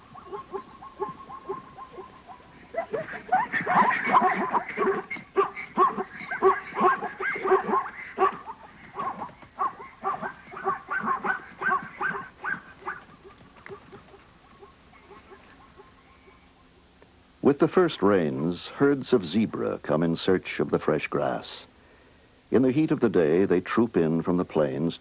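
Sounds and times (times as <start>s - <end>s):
zebras barking: 0.0s - 16.7s.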